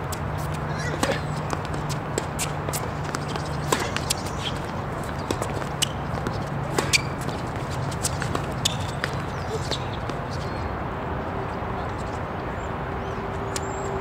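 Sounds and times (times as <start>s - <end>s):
tennis ball hits and bounces: 0.8s - 10.3s.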